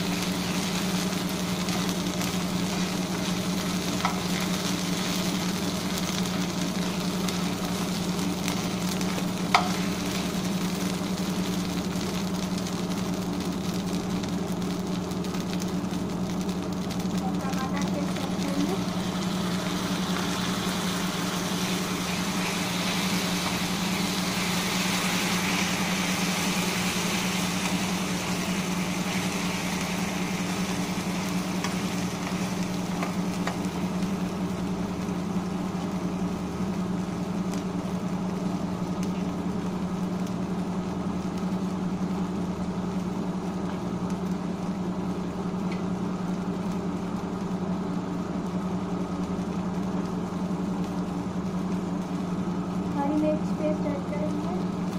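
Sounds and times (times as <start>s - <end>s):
spatula stirring in pan: 0.0s - 17.0s, 17.8s - 34.5s
low mechanical hum: 0.0s - 54.9s
sauce sizzling in hot oil: 0.0s - 54.9s.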